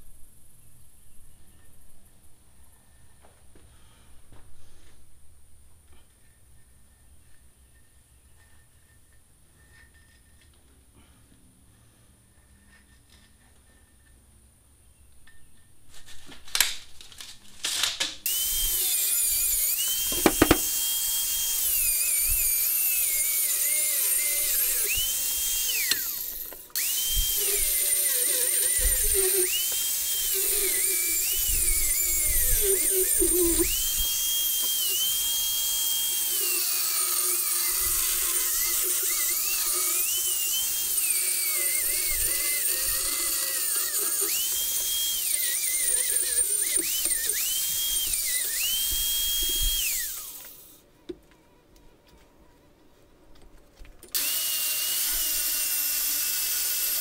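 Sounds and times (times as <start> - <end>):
angle grinder cutting steel: 18.3 - 50.8, 54.1 - 57.0.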